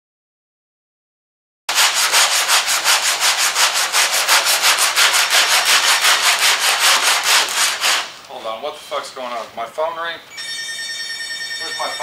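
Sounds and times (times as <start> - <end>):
sandpaper scratching on filler: 1.7 - 9.1.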